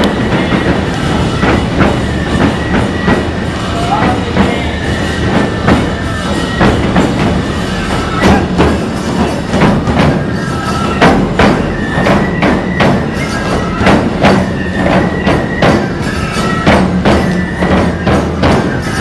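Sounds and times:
hand cymbals clashing: 0.0 - 19.0
high piping melody: 0.0 - 19.0
taiko drums beating: 0.0 - 19.0.

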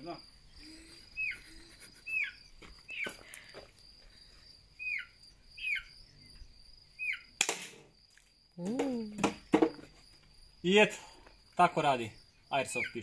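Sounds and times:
crickets trilling: 0.0 - 13.0
bird chirping: 0.3 - 3.5, 4.7 - 7.4, 12.1 - 13.0
airsoft pistol shot: 7.4 - 7.8.

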